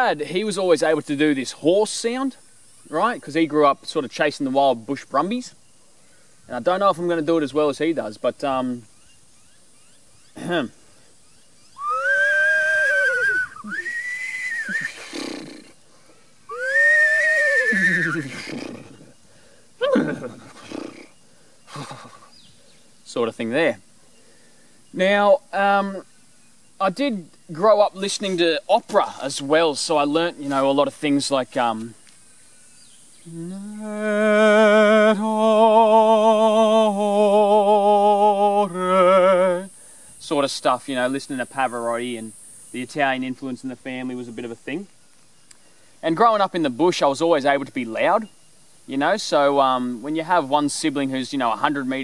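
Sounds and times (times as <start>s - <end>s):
man imitating horse whinny: 11.8s - 15.8s, 16.5s - 19.1s, 19.8s - 21.1s
man singing operatically: 33.8s - 39.7s.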